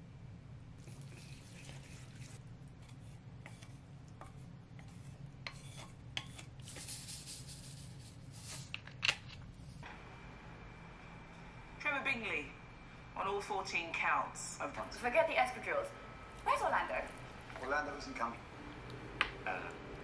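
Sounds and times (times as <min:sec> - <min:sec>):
wet noodles squishing: 0:00.8 - 0:06.6.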